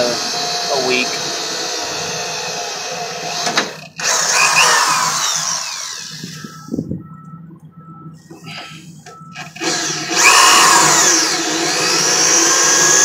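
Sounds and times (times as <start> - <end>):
drill click: 0.0 - 6.4, 9.3 - 13.0
cordless drill drilling into steel: 0.0 - 6.5, 9.3 - 13.0.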